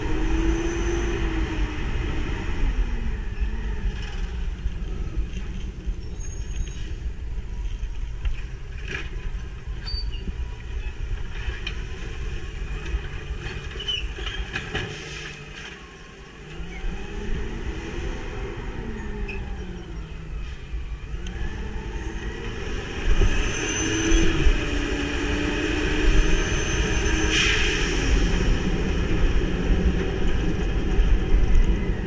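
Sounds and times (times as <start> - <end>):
garbage truck engine rumbling: 0.0 - 22.5.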